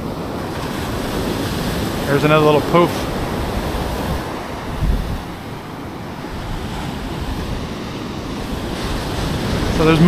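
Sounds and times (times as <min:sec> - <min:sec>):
ocean surf breaking on beach: 0:00.0 - 0:10.0
wind rumbling on microphone: 0:00.0 - 0:10.0.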